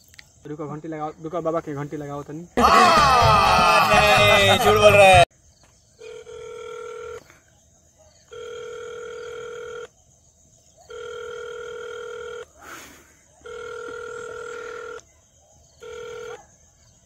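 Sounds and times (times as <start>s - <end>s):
phone ringback tone: 6.0s - 7.2s, 8.3s - 9.9s, 10.9s - 12.5s, 13.5s - 15.0s, 15.8s - 16.4s.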